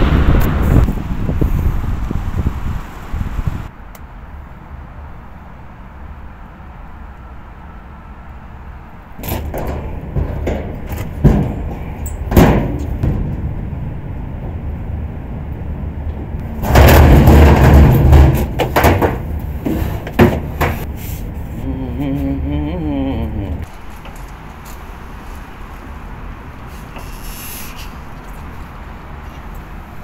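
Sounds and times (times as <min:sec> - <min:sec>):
sheet-metal hood knocks and clanks: 0:09.2 - 0:13.8, 0:16.1 - 0:20.9
scraping rush of metal: 0:09.2 - 0:14.7, 0:16.2 - 0:21.4.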